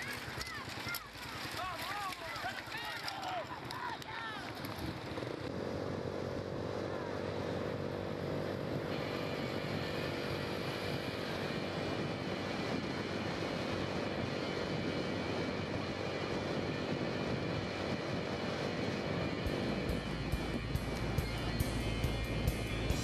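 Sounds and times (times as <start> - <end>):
road and wind noise: 0.0 - 23.0
vehicle engine drone: 0.0 - 23.0
high whine: 6.6 - 23.0.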